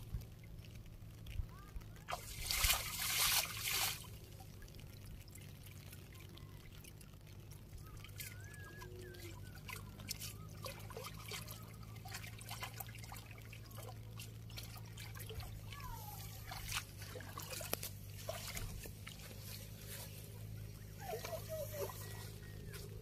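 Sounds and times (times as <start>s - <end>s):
water trickling and dripping: 0.0s - 23.0s
net swished through water: 2.1s - 4.2s, 14.2s - 23.0s.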